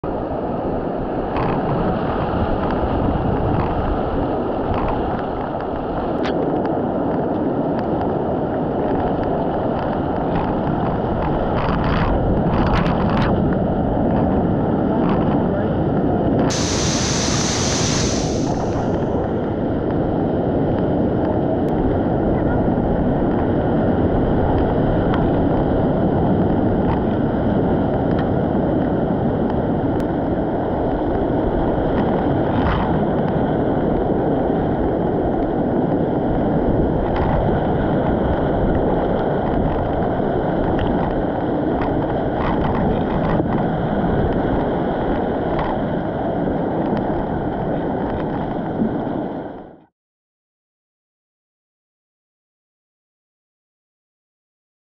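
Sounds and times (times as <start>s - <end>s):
whitewater rapid rushing: 16.5s - 19.3s.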